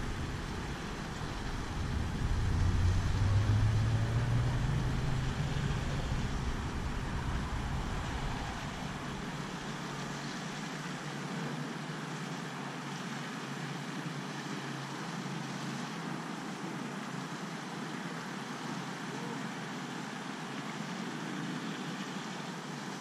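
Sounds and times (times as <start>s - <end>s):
low rumble: 0.0s - 10.0s
distant road traffic hiss: 0.0s - 23.0s.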